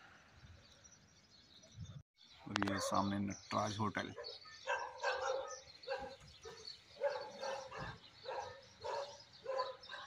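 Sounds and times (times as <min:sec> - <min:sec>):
dogs barking: 0:04.2 - 0:10.0.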